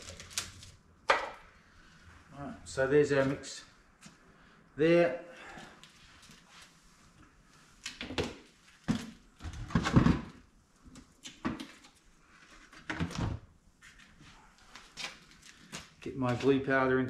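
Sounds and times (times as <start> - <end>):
plastic containers knocking and clattering: 8.0 - 10.4.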